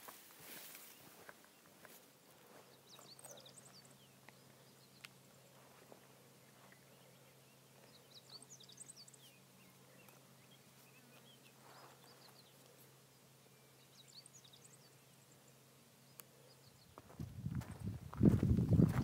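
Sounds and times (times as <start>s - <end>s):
faint bird chirps: 2.4s - 17.1s.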